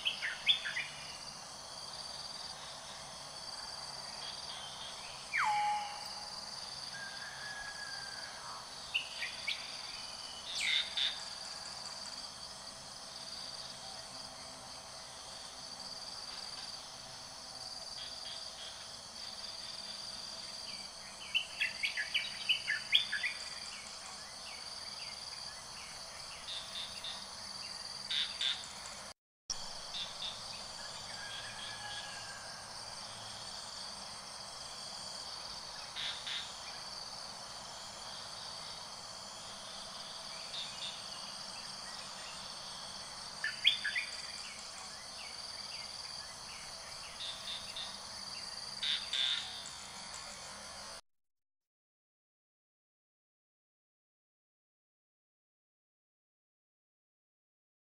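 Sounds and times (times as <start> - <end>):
insects chirring: 0.0 - 7.4, 8.1 - 51.0
bird calls: 5.3 - 6.2.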